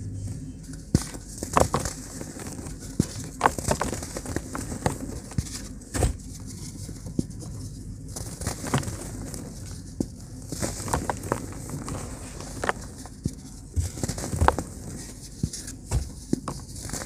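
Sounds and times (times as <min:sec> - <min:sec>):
crumbs pattering down: 0:00.6 - 0:17.0
cement blocks crushed by hand: 0:00.9 - 0:06.2, 0:10.5 - 0:13.1.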